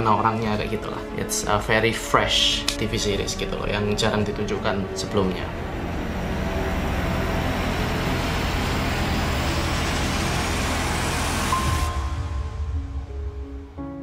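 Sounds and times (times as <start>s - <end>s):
soft sustained music tones: 0.0s - 14.0s
loud rushing noise with rumble: 3.0s - 13.8s.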